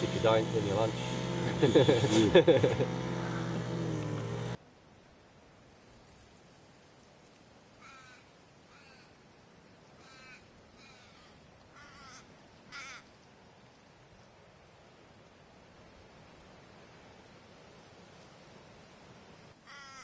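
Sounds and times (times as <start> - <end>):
crow cawing: 3.2 - 3.6, 7.8 - 9.1, 10.0 - 13.1, 19.6 - 20.0.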